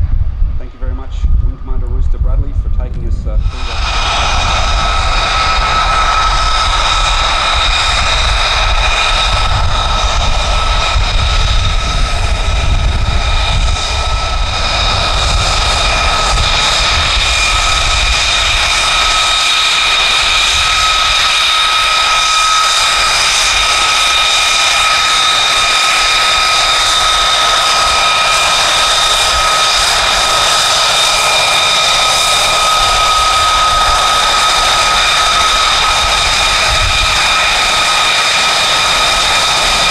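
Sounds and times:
low rumble: 0.0s - 21.3s
jet engine whine: 0.0s - 39.9s.

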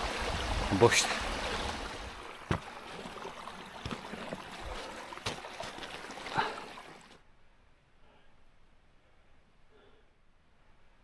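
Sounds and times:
stream rushing over rocks: 0.0s - 7.2s.

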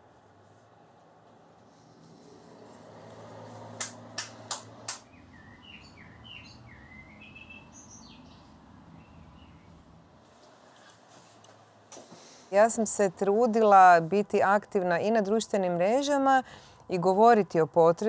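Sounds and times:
songbird chirping: 4.9s - 9.8s.

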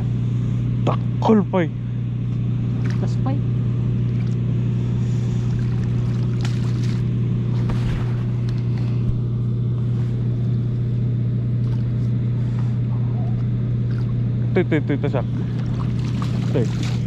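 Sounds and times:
low mechanical hum: 0.0s - 17.0s
water splashing: 5.4s - 8.9s, 15.3s - 17.0s.

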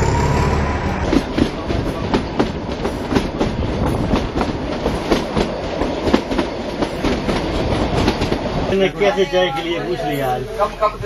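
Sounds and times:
train wheels clattering over rail joints: 1.0s - 8.6s.

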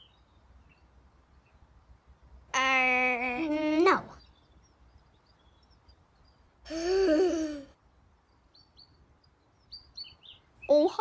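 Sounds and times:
faint birds chirping: 0.0s - 11.0s.

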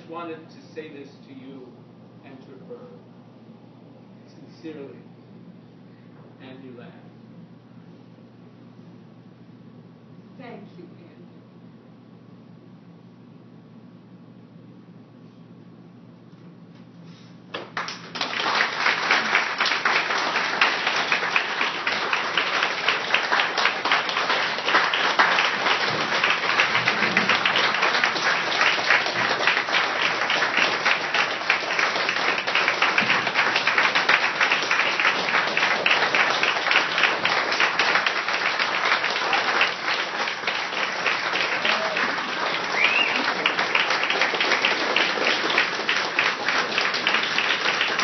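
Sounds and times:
audience applauding: 17.5s - 48.0s.

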